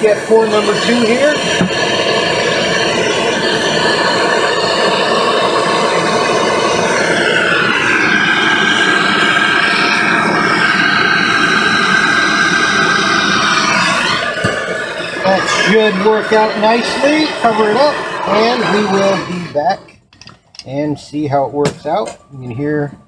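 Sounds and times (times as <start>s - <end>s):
gas torch flame hissing: 0.0s - 20.0s
high whistling tone: 0.6s - 19.9s.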